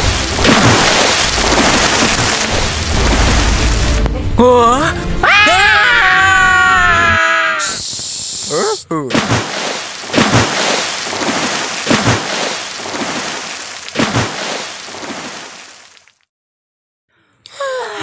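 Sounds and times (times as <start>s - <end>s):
water rushing and splashing: 0.0s - 4.1s, 9.1s - 16.1s.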